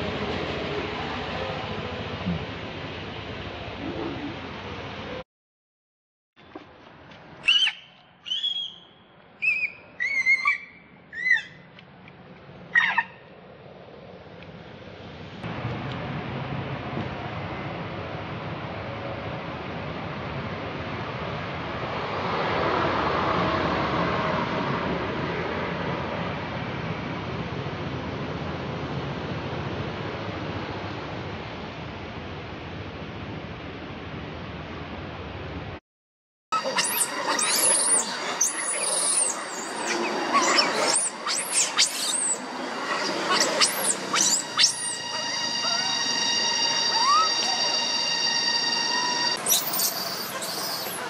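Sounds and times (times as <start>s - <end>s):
steady outdoor rushing noise: 0.0s - 5.2s, 11.8s - 35.8s, 36.5s - 51.0s
young monkey screaming: 7.4s - 8.8s, 9.4s - 11.6s, 12.7s - 13.2s, 36.6s - 51.0s.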